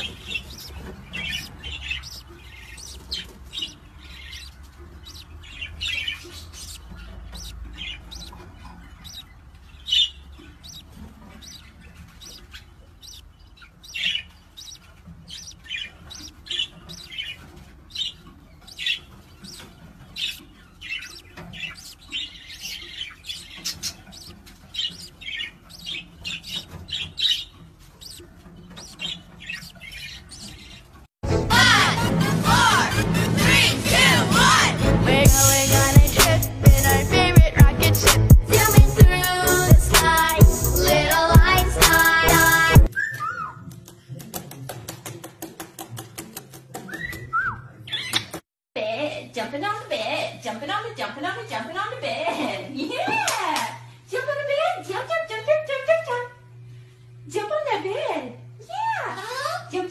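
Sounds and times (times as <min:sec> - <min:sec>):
budgerigars chirping: 0:00.0 - 0:31.0, 0:35.3 - 0:43.4.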